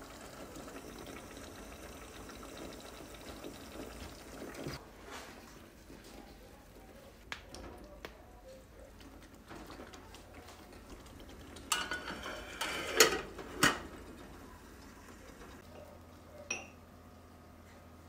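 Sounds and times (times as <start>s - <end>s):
metal pot lid clattering: 11.7s - 13.8s.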